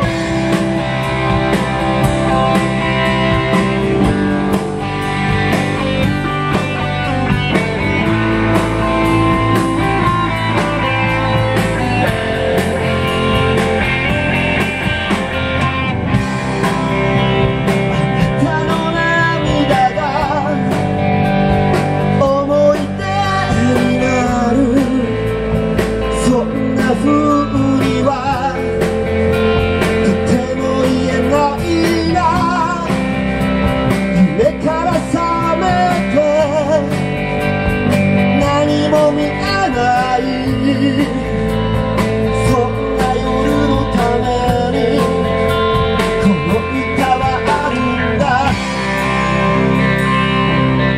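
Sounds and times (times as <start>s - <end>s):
wavering lead melody: 0.0s - 26.4s, 36.7s - 50.9s
live rock band playing: 0.0s - 50.9s.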